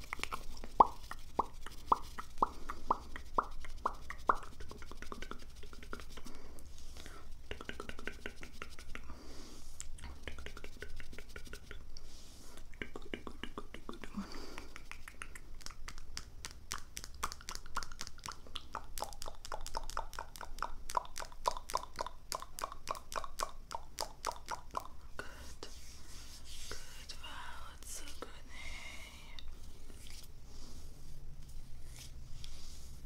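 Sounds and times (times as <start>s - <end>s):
wet tongue and lip clicks: 0.0s - 6.3s, 7.4s - 9.1s, 9.8s - 11.8s, 12.6s - 25.4s.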